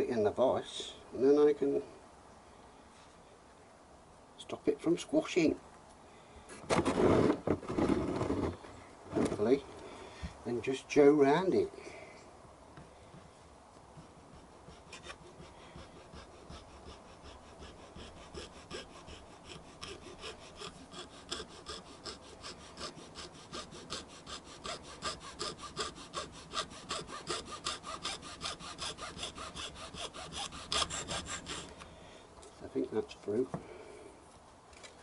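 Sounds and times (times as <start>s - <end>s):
hacksaw sawing through rubber hose: 14.3s - 31.7s.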